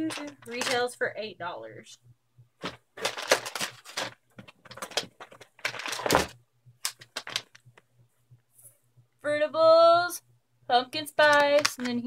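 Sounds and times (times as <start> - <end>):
plastic bag crinkling: 0.0 - 0.9, 2.6 - 7.7, 11.2 - 12.0.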